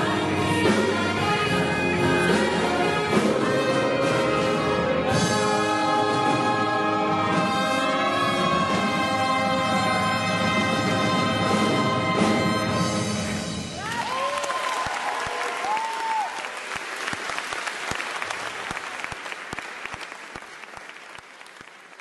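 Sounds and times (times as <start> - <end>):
choir and band held chord: 0.0 - 13.2
cheering whoops: 13.8 - 16.7
audience applause: 13.8 - 22.0.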